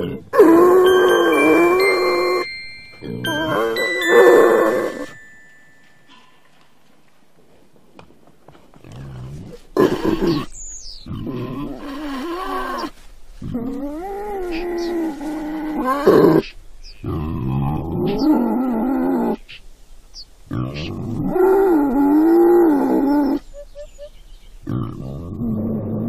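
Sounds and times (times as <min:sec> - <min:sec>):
boar grunt: 0:00.0 - 0:00.5, 0:08.8 - 0:19.4, 0:24.6 - 0:26.0.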